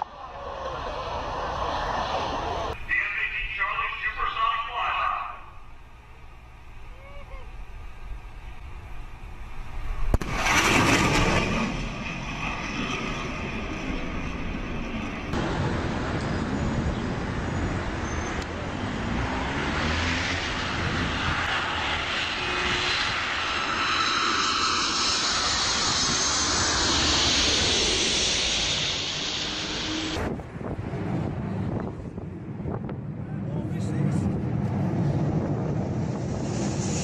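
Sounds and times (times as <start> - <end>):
jet engine noise: 0.0 - 37.0
fighter jet blast: 10.0 - 18.4, 19.4 - 32.3, 33.9 - 37.0.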